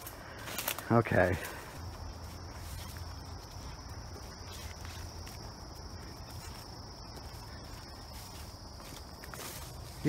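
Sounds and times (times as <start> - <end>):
footsteps rustling through undergrowth: 0.0 - 10.0
high-pitched insect chorus: 0.0 - 10.0.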